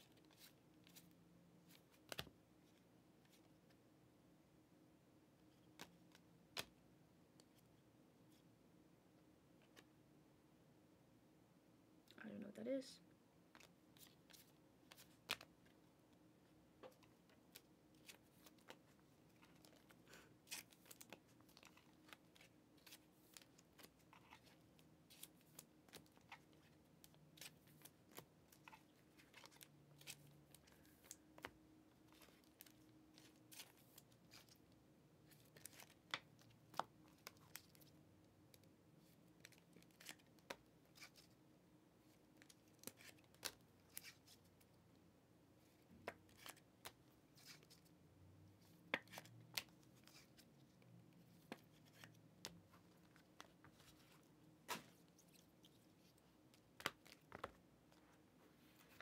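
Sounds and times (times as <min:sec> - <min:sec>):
trading cards flipped and stacked: 0:00.2 - 0:02.4, 0:05.6 - 0:06.8, 0:13.5 - 0:15.5, 0:46.0 - 0:47.8, 0:48.9 - 0:50.4, 0:51.4 - 0:55.5, 0:56.8 - 0:57.6.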